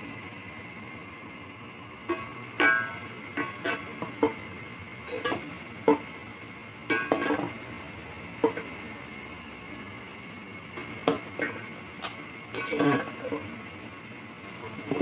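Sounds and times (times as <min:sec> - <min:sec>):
metal utensil knocking metal pot: 0:02.1 - 0:04.4, 0:06.9 - 0:07.5.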